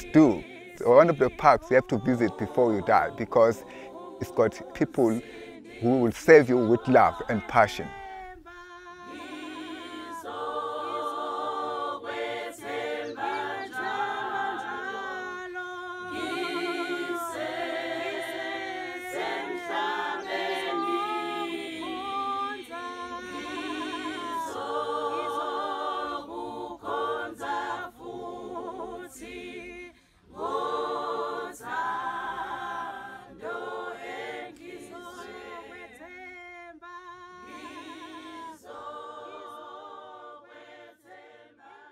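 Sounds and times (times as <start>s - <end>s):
choir singing unaccompanied: 0.0s - 41.9s.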